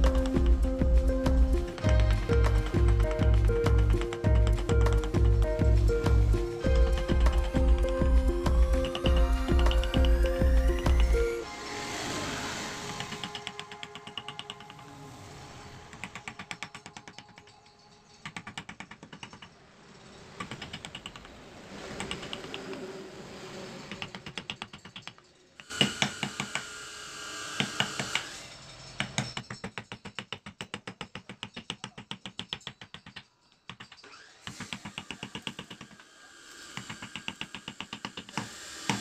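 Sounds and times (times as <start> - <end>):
hand tool clicking on wood: 1.6 - 5.3, 8.8 - 10.1, 18.2 - 19.5, 20.4 - 21.4, 22.0 - 22.8, 23.9 - 26.7, 27.6 - 28.3, 29.0 - 36.1, 36.7 - 39.0.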